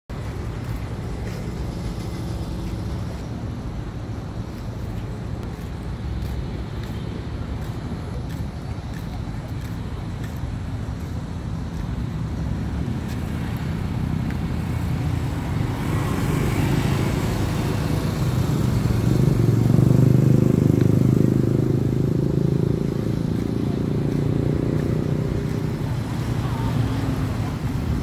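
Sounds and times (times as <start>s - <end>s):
road traffic: 0.1s - 28.0s
vehicle engine passing: 12.4s - 28.0s.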